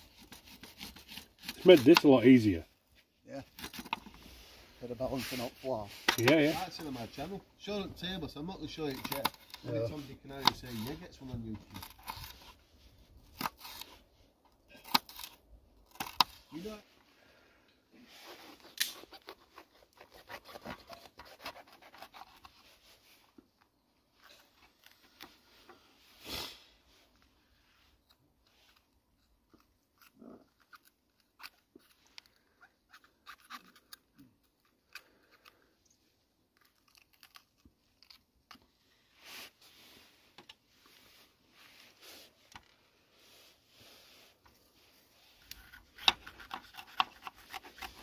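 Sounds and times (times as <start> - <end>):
knife crunching through pepper: 36.6 - 38.3, 45.5 - 48.0.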